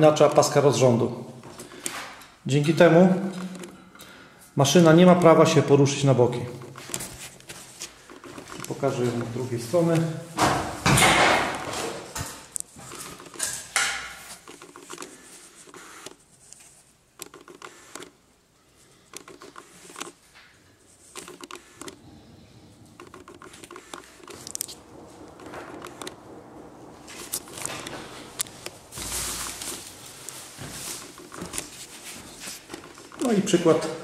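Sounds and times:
camera handling knocks and rustles: 0:10.4 - 0:16.2, 0:30.7 - 0:33.2.

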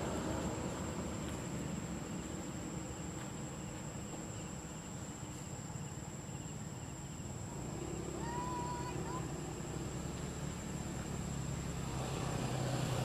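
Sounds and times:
high-pitched insect drone: 0:03.6 - 0:13.0.

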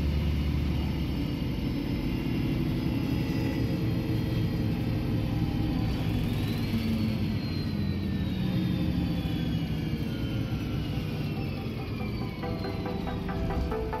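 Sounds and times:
bus diesel engine rumble: 0:00.0 - 0:14.0
thin high whine: 0:10.6 - 0:14.0.

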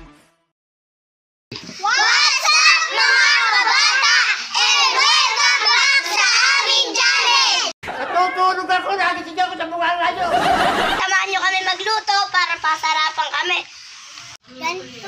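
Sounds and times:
children shouting in unison: 0:01.8 - 0:07.7.

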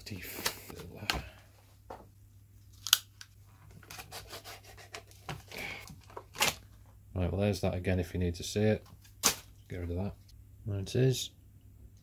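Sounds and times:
plastic snapping: 0:02.8 - 0:03.3.

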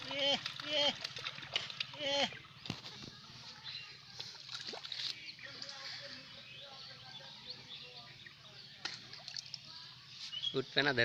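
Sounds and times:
fish splashing at water surface: 0:00.0 - 0:03.0, 0:04.3 - 0:05.2
birds chirping: 0:00.0 - 0:11.0.

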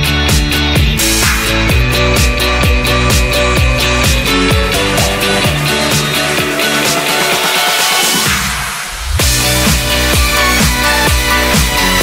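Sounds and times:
music with driving drum beat: 0:00.0 - 0:12.0.

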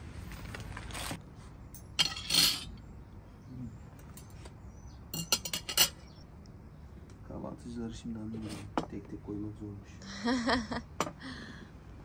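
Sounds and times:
glasses and dishes clinking: 0:02.0 - 0:02.7, 0:05.1 - 0:06.0.

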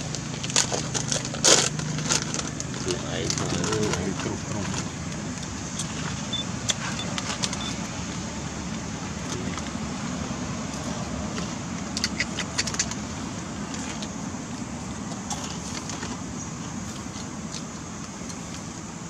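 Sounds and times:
low engine-like rumble: 0:00.0 - 0:19.0.

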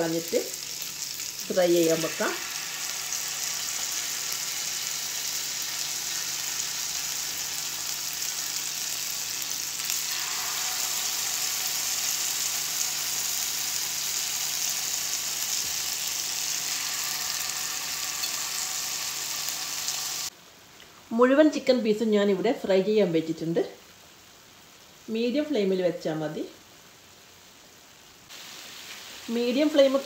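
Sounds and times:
chicken sizzling in a pan: 0:00.0 - 0:20.3, 0:28.3 - 0:30.0.

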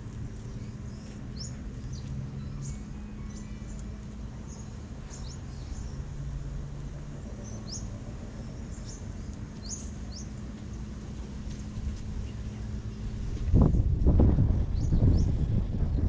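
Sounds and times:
small birds chirping: 0:00.0 - 0:11.0
low background rumble: 0:00.0 - 0:16.0.

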